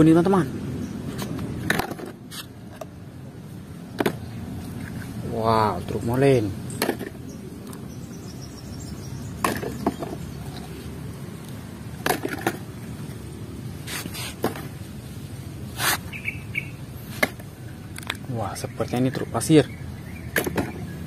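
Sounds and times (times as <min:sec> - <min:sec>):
steady background hiss: 0:00.0 - 0:21.0
plastic toys knocking on concrete: 0:01.6 - 0:02.2, 0:03.9 - 0:04.3, 0:06.7 - 0:07.3, 0:09.4 - 0:10.7, 0:12.0 - 0:12.8, 0:20.3 - 0:20.8.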